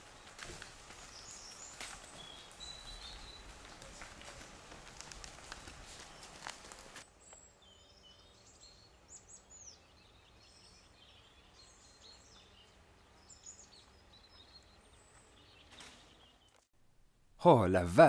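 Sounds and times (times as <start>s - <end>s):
cow hooves clopping: 0.0s - 7.0s
small birds chirping: 0.0s - 16.7s.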